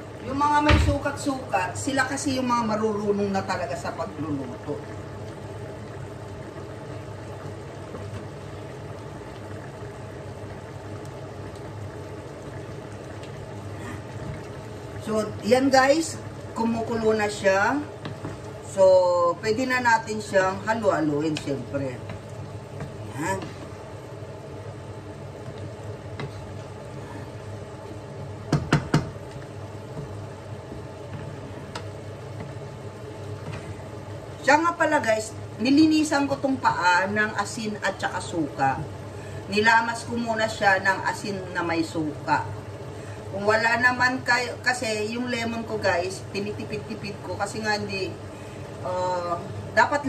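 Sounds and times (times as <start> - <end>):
sauce bubbling in a pan: 0.0 - 50.0
wooden spatula stirring: 13.2 - 18.8, 19.5 - 34.6
spatula knocking against pan: 28.5 - 29.2.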